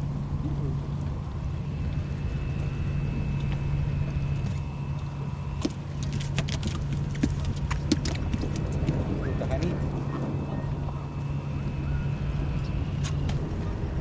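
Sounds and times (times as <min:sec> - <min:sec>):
boat motor humming: 0:00.0 - 0:14.0.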